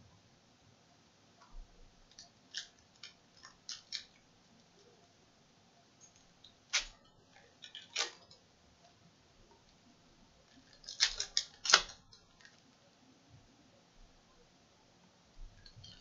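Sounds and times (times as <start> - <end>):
foil wrappers crinkling: 6.7 - 8.4, 10.5 - 12.6.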